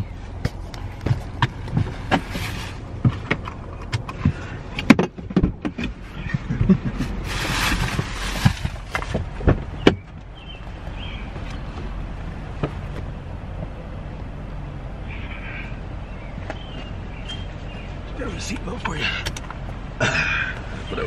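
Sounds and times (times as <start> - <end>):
steady low hum: 0.0 - 21.0
handling clicks and knocks: 0.4 - 7.1, 18.5 - 19.8.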